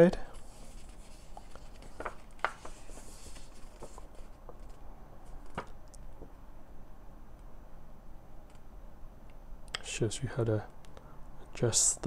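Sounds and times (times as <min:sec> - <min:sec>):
paper rustling: 0:00.3 - 0:06.0
booklet taps and clicks: 0:01.3 - 0:03.0.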